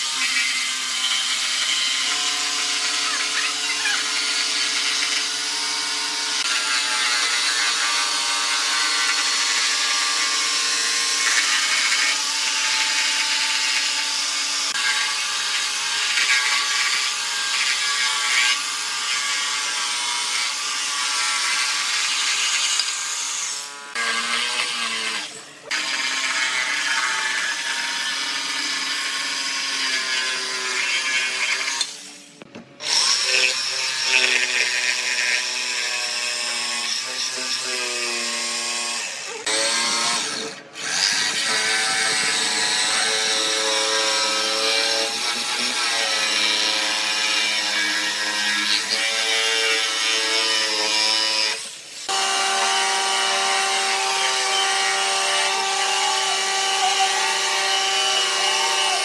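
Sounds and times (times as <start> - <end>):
blade rasping through wood: 0.0 - 32.0, 32.8 - 59.0
jigsaw motor whine: 0.0 - 59.0.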